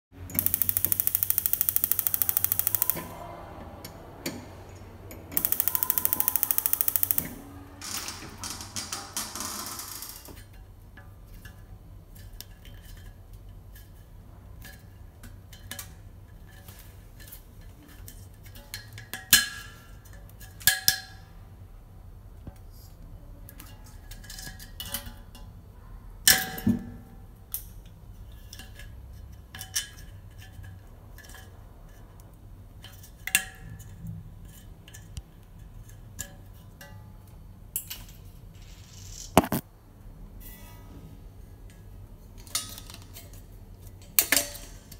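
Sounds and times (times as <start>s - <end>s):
metallic clinks of regulator: 0.4s - 3.1s, 5.4s - 7.4s.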